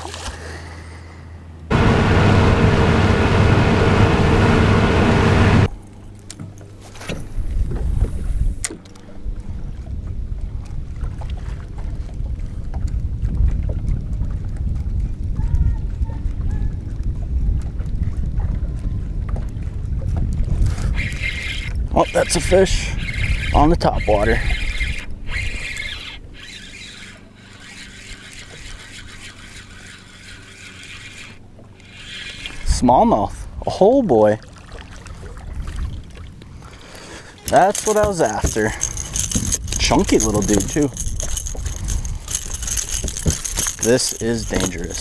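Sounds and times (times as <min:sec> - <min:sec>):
boat motor humming: 0:01.2 - 0:06.8, 0:16.1 - 0:32.7, 0:34.5 - 0:45.0
wind buffeting microphone: 0:09.2 - 0:26.4, 0:35.1 - 0:36.8, 0:37.4 - 0:45.0.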